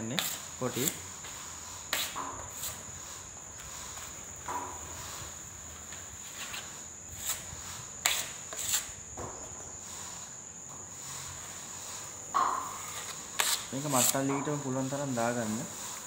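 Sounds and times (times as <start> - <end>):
putty knife scraping: 0.2 - 5.2, 6.2 - 9.0, 11.1 - 16.0.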